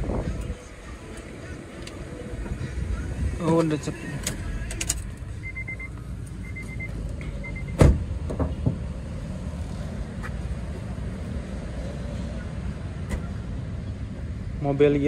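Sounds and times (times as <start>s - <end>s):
faint quick beeps: 5.4s - 7.8s
loud thump: 7.8s - 8.8s.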